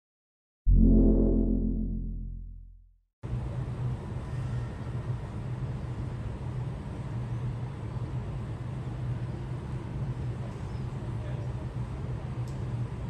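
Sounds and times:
low rumbling hum: 0.7s - 2.8s.

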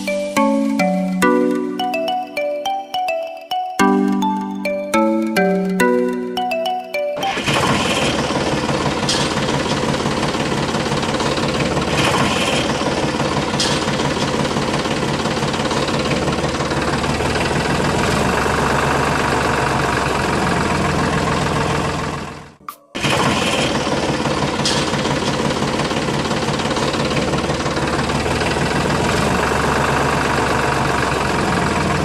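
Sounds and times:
marimba music jingle: 0.0s - 8.2s
engine running steadily: 7.2s - 32.0s.

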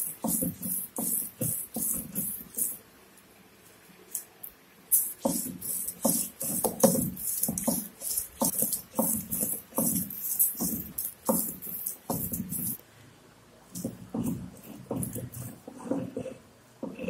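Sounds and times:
stone scraping on stone: 5.2s - 12.8s.

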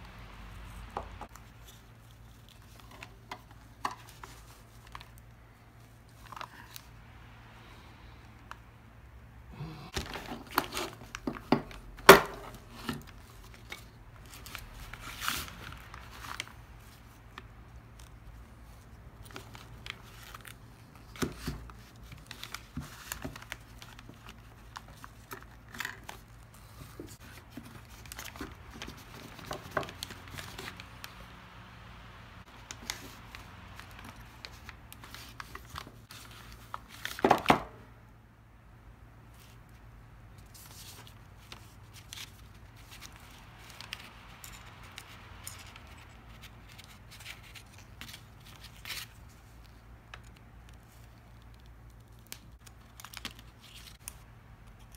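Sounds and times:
crumpled paper rustling: 9.9s - 31.3s, 32.5s - 37.4s, 40.4s - 54.2s.

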